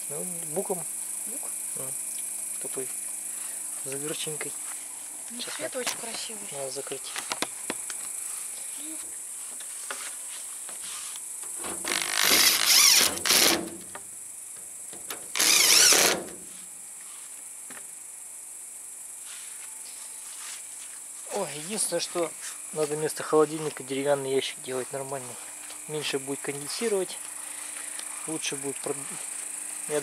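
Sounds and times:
crickets chirring: 0.0s - 30.0s
cordless drill whining: 11.8s - 13.7s, 15.3s - 16.2s.

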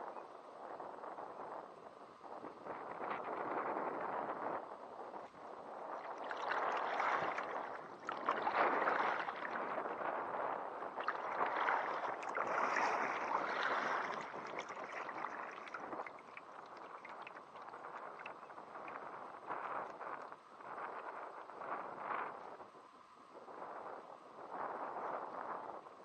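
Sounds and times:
paddle splashing in river water: 5.3s - 20.3s
water dripping: 6.0s - 9.7s, 11.0s - 19.2s.

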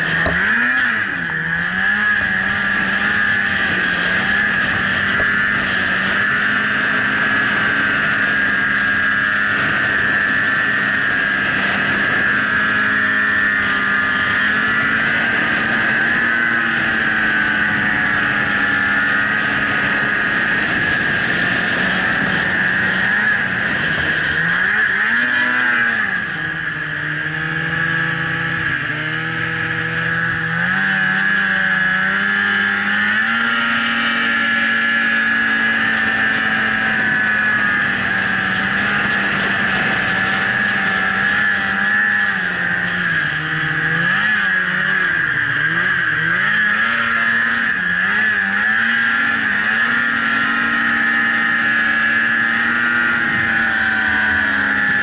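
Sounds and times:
snowmobile engine whining: 0.0s - 55.0s.

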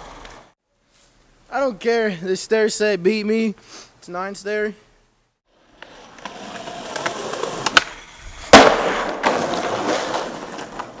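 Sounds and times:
skateboard wheels rolling on concrete: 0.0s - 0.6s, 5.5s - 11.0s
skateboard landing slap: 6.2s - 11.0s
skateboard tail pop: 7.0s - 9.8s.

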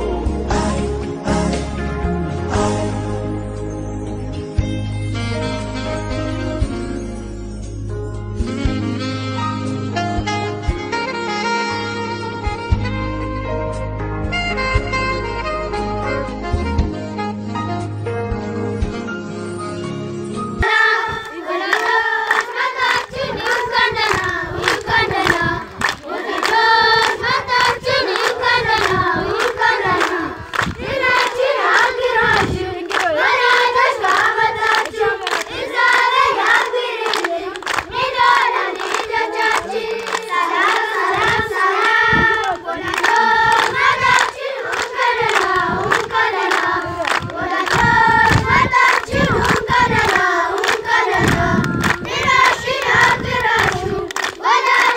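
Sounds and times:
children singing: 20.6s - 54.9s
hands clapping in time: 21.2s - 54.9s.

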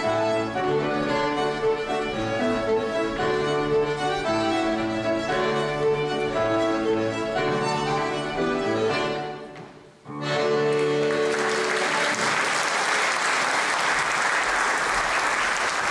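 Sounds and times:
audience applause: 10.7s - 15.9s.

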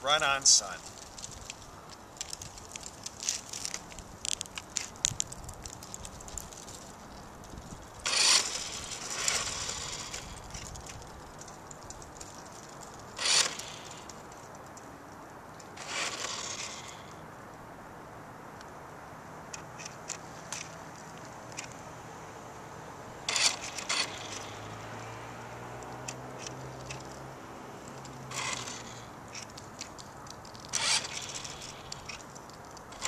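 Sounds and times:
toy car electric motor whirring: 8.0s - 14.5s, 15.7s - 17.2s, 23.3s - 25.0s, 27.9s - 33.0s.

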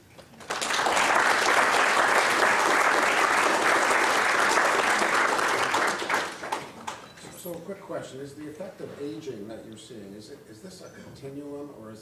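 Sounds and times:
audience applauding: 0.4s - 7.0s.

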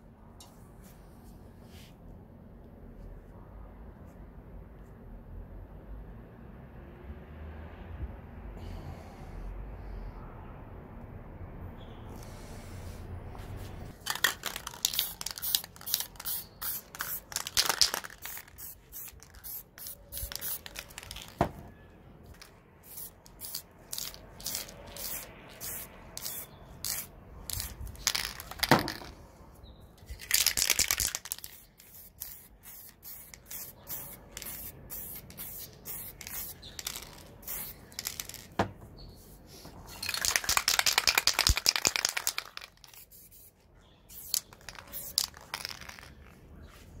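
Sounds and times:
spray paint cans hissing: 13.9s - 21.4s, 22.3s - 29.0s, 30.0s - 46.4s.

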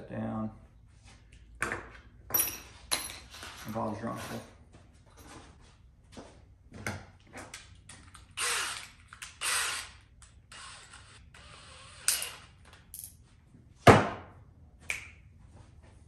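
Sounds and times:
drill rasping bursts: 8.4s - 12.4s.

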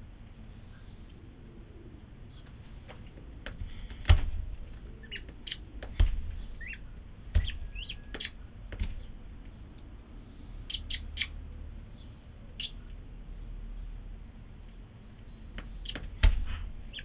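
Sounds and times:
dull knocks: 2.8s - 9.5s, 15.6s - 17.0s
vulture chick peeping: 4.8s - 9.6s, 10.6s - 11.4s, 12.0s - 13.0s.

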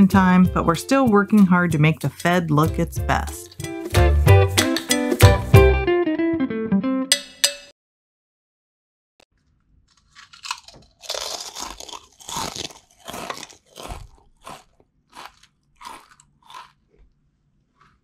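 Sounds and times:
potato chips crunching: 9.4s - 18.0s.

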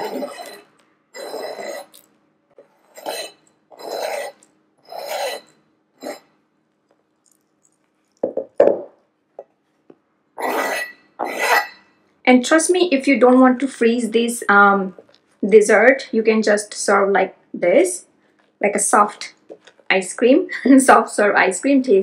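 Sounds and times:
knife scraping cutting board: 0.0s - 2.0s, 2.7s - 6.3s, 10.4s - 11.8s.

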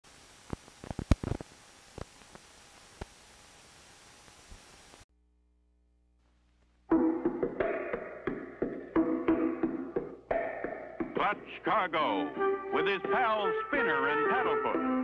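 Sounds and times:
old film crackle hiss: 0.0s - 5.1s, 6.2s - 6.9s.

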